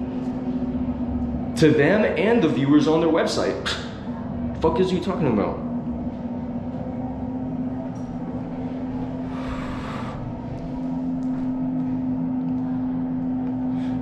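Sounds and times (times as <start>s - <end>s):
ventilation fan humming: 0.0s - 14.0s
breathy exhale: 9.2s - 10.4s.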